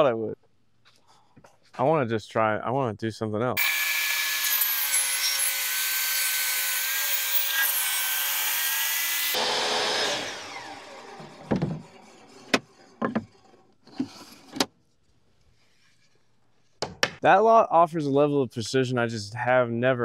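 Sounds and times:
saw spinning down: 3.6 - 12.4
table saw blade whining: 3.6 - 13.1
wooden boards knocking: 12.5 - 13.3, 16.8 - 17.2.

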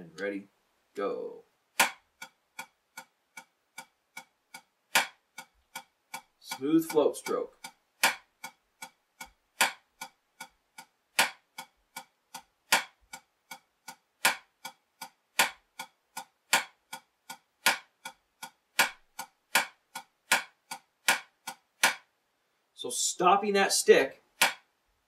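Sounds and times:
drumstick striking practice pad: 1.7 - 22.1, 24.4 - 24.7.

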